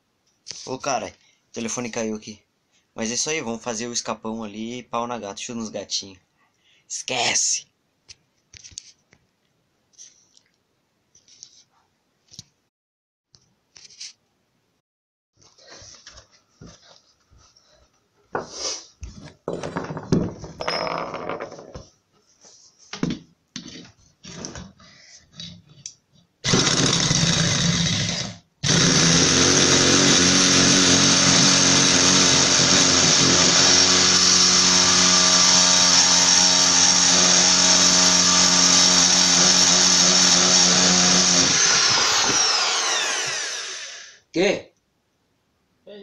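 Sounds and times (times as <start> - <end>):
electric drill running: 26.4 - 44.2.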